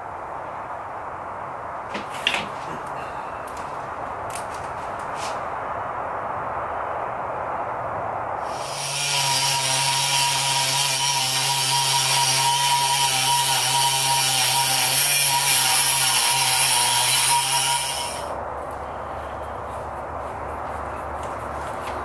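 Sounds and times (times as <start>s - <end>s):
rotary tool cutting steel: 8.4s - 18.4s.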